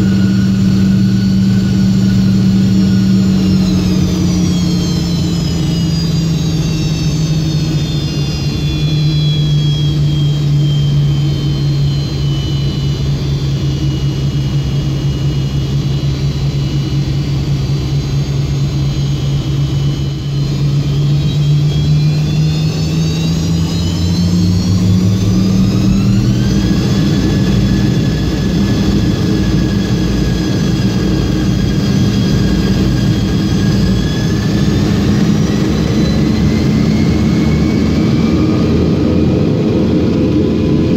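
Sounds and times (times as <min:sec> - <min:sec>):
high fan whine: 0:00.0 - 0:40.9
jet engine roar: 0:00.0 - 0:40.9.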